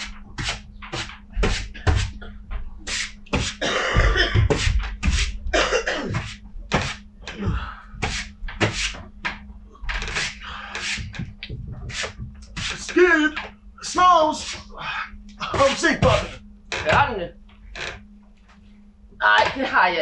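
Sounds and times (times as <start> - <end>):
broom sweeping stage floor: 2.9 - 3.6, 4.5 - 5.4, 6.1 - 7.0, 8.0 - 9.0, 10.1 - 12.9, 14.4 - 14.7.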